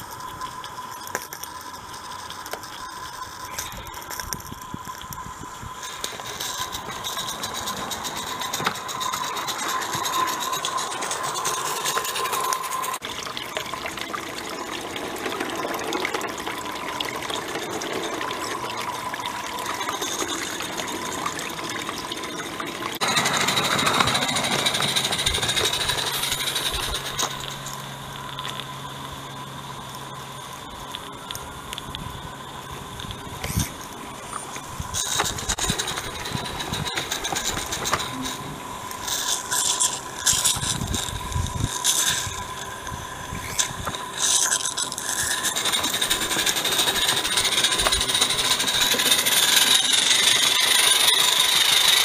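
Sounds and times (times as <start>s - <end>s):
steam hissing: 3.3s - 13.0s, 23.0s - 27.9s, 34.7s - 52.0s
steam locomotive chuffing: 6.2s - 12.9s, 23.0s - 27.7s, 45.2s - 52.0s.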